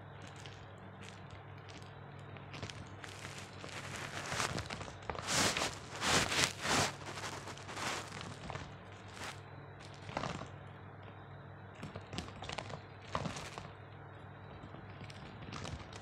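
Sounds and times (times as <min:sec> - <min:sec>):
low steady hum: 0:00.0 - 0:16.0
squirrel rustling on fabric: 0:02.4 - 0:10.4.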